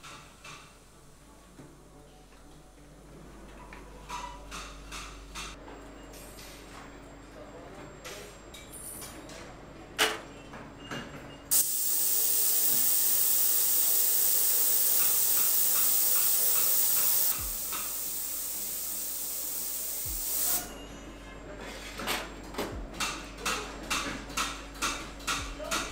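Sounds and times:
cleaning tank hissing: 11.5s - 20.7s.

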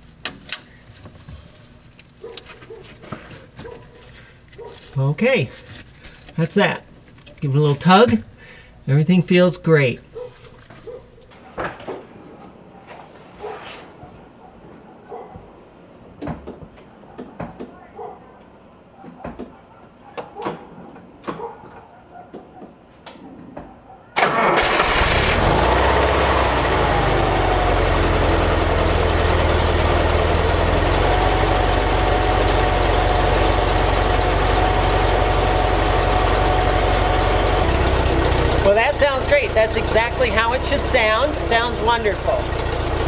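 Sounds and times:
car engine starting and idling: 24.2s - 43.0s.

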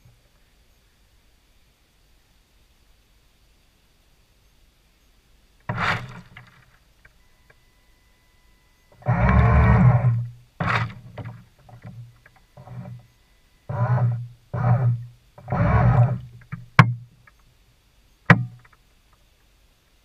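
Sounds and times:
pellets dropping into water: 5.7s - 6.7s
bait boat motors running: 8.9s - 12.0s, 13.7s - 16.6s.

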